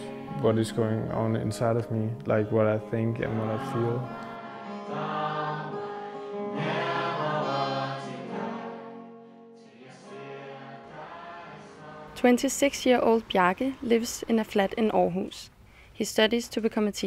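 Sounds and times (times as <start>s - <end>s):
group singing worship song: 0.0s - 12.3s.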